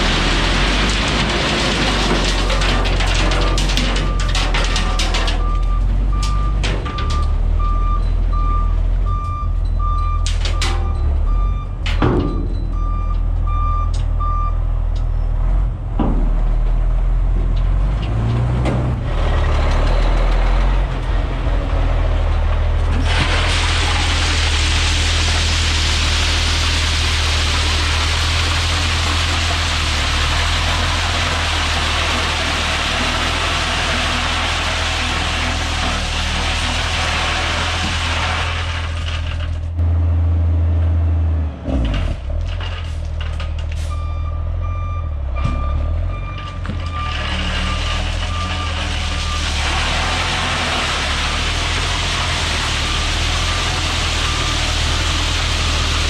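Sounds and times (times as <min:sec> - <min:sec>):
gravel sliding out: 0:00.0 - 0:06.6, 0:18.1 - 0:39.7, 0:46.4 - 0:56.0
truck engine running: 0:00.0 - 0:56.0
clunks: 0:00.4 - 0:21.8, 0:41.6 - 0:52.4
reverse alarm beeping: 0:05.4 - 0:14.6.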